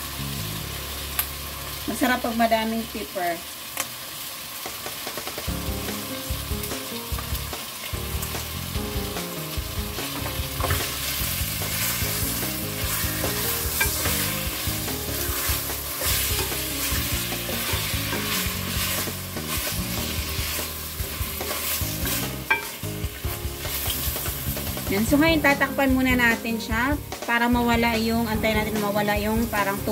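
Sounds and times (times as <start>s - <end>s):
chicken sizzling in oil: 0.0s - 29.9s
wooden spoon stirring in pot: 10.1s - 25.0s.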